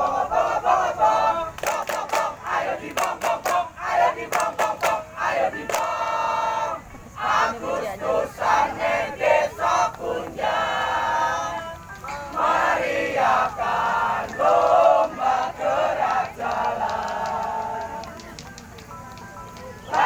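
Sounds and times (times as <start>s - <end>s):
group of voices singing: 0.0s - 18.4s, 19.8s - 20.0s.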